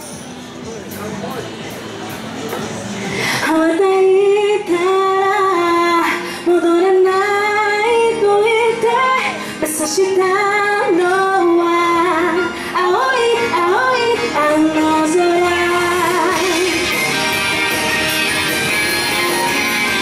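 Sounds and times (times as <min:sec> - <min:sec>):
music backing track: 0:00.0 - 0:20.0
woman singing: 0:03.4 - 0:17.0.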